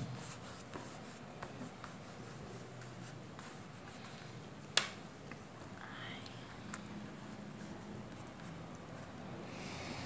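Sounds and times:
hands rubbing pastel on paper: 0:00.0 - 0:04.4.

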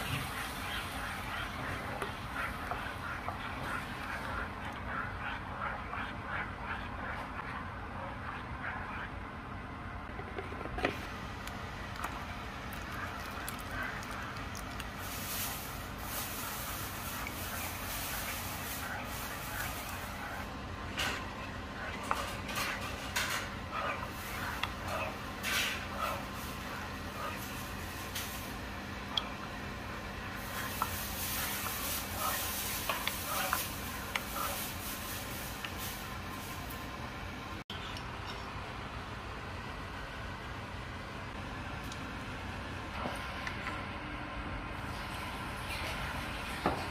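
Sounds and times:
spatula stirring thick gravy: 0:00.0 - 0:09.1, 0:11.8 - 0:35.7
steady low hum: 0:00.0 - 0:46.9.

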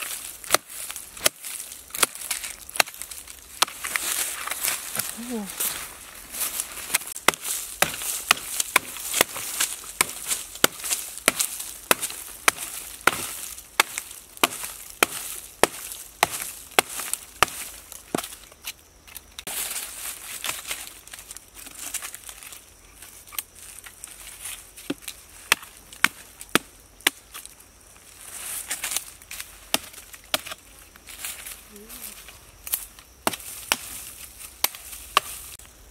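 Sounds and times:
chopping into rotten log: 0:06.9 - 0:18.3.

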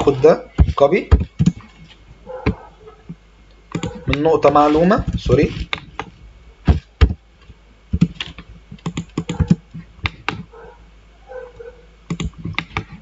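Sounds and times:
keyboard and mouse clicking: 0:03.7 - 0:04.3, 0:08.0 - 0:10.5, 0:12.1 - 0:13.0.

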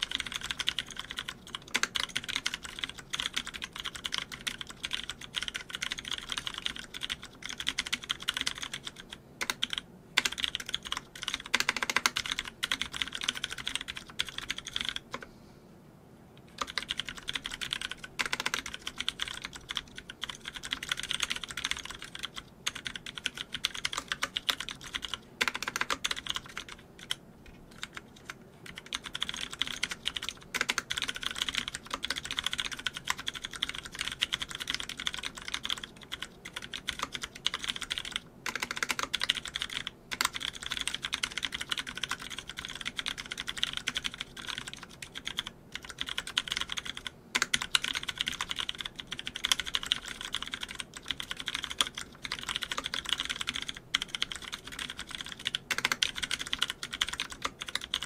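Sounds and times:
fast mechanical keyboard typing: 0:00.0 - 0:15.2, 0:16.5 - 0:58.0.

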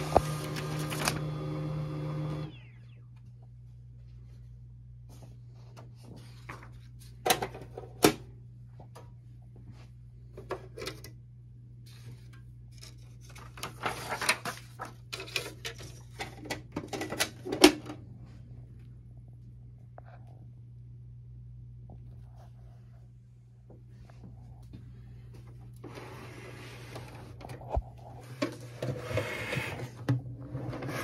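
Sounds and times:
paper rustling: 0:00.0 - 0:01.2, 0:05.8 - 0:07.2, 0:11.9 - 0:16.2
steady low hum: 0:02.3 - 0:13.4, 0:17.5 - 0:30.9.

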